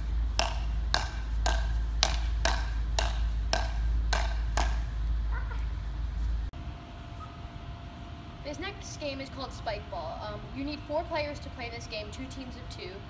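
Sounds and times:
paddles hitting a ball: 0:00.3 - 0:05.0.

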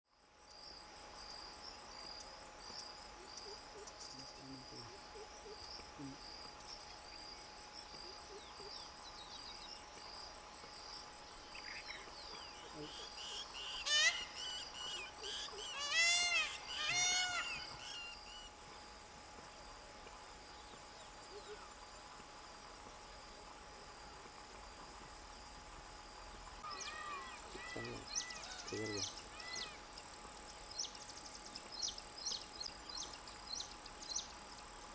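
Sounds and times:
insects trilling: 0:00.1 - 0:34.9
peacock calling: 0:11.6 - 0:18.5, 0:26.6 - 0:29.8.

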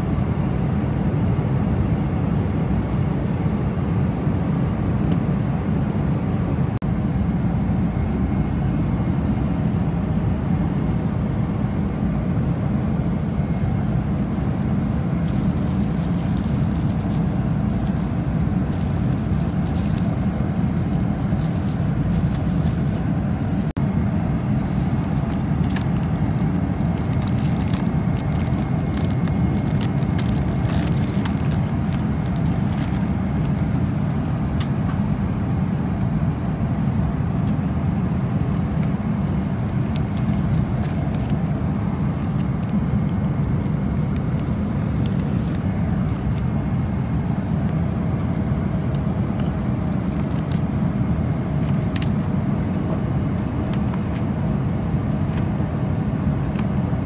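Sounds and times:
airliner cabin drone: 0:00.0 - 0:57.0
paper rustling and pages turning: 0:13.8 - 0:23.8, 0:25.0 - 0:34.4, 0:37.4 - 0:46.8, 0:48.8 - 0:50.7, 0:51.3 - 0:54.3, 0:54.9 - 0:56.7.

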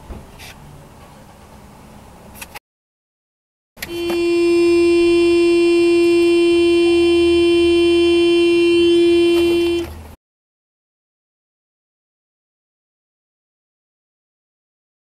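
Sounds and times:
car horn blast: 0:03.8 - 0:10.2.

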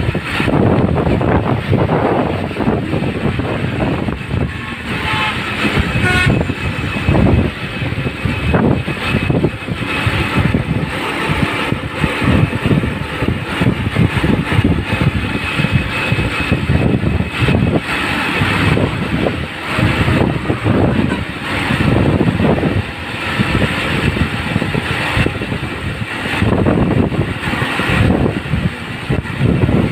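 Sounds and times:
cars and trucks passing: 0:00.0 - 0:29.9
wind buffeting microphone: 0:00.0 - 0:29.9
vehicle horn toot: 0:05.0 - 0:06.6.

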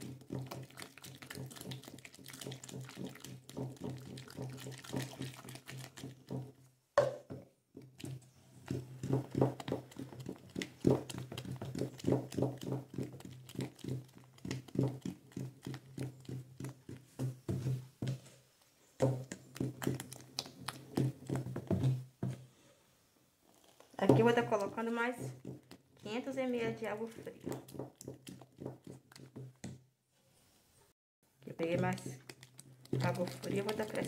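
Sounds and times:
spoon scraping plastic bucket: 0:00.0 - 0:06.5, 0:07.9 - 0:18.4, 0:23.5 - 0:29.6, 0:31.6 - 0:34.0.

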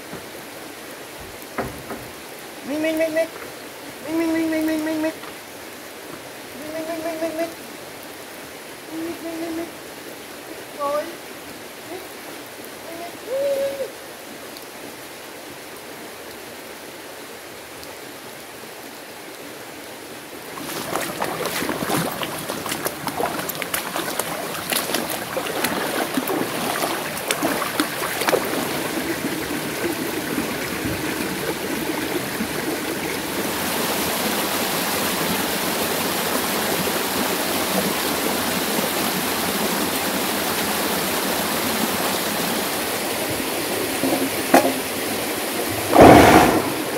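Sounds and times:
stream flowing over rocks: 0:00.0 - 0:46.9
dog wading through water: 0:20.4 - 0:33.7.

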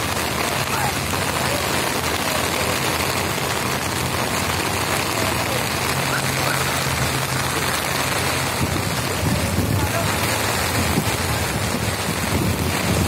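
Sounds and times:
heavy rain pouring: 0:00.0 - 0:13.0
low engine hum: 0:00.0 - 0:13.0.

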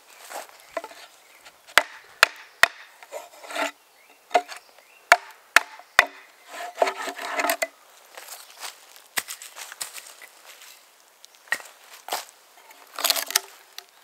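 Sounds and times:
wood splitting rasp: 0:00.8 - 0:07.7
axe chopping wood: 0:01.7 - 0:03.0, 0:04.3 - 0:07.7.

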